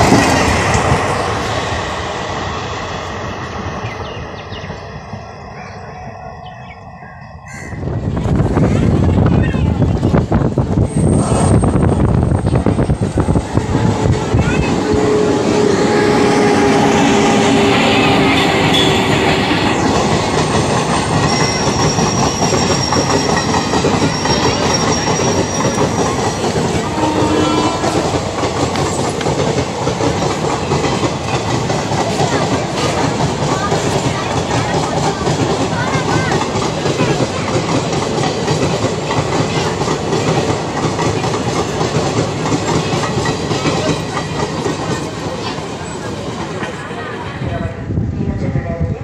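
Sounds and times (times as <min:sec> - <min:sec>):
train wheels clattering over joints: 0:09.8 - 0:47.4.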